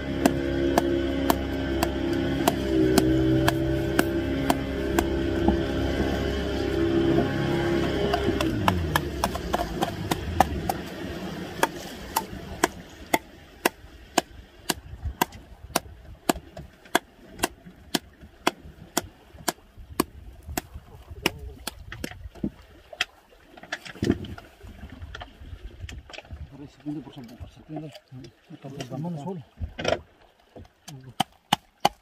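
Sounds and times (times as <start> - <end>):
fish tail knocking on boat floor: 0.2 - 6.1, 8.1 - 10.8.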